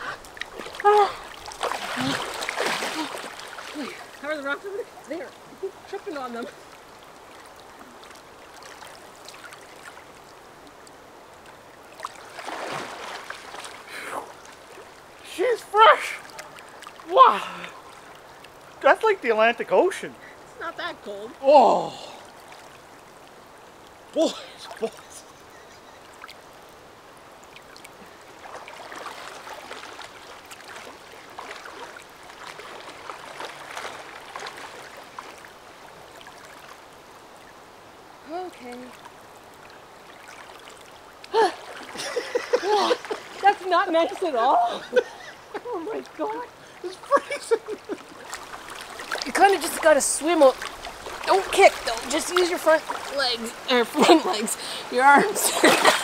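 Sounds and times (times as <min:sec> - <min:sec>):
loud splash: 0:00.0 - 0:04.3, 0:12.0 - 0:14.3, 0:48.3 - 0:56.0
splashes of person wading: 0:00.0 - 0:10.2, 0:11.5 - 0:18.7, 0:27.5 - 0:37.0, 0:38.6 - 0:56.0
river water flowing and lapping: 0:00.0 - 0:56.0.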